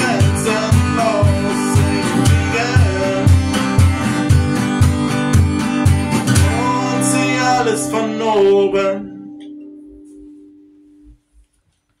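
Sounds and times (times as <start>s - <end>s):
man singing: 0.0s - 4.6s, 6.3s - 9.3s
acoustic guitar chord ringing: 0.0s - 11.2s.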